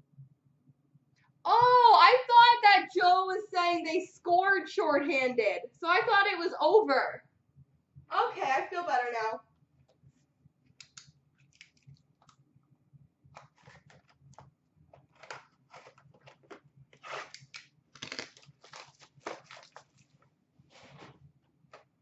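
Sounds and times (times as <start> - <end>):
cardboard tearing and crinkling: 13.4 - 14.1, 15.0 - 20.1.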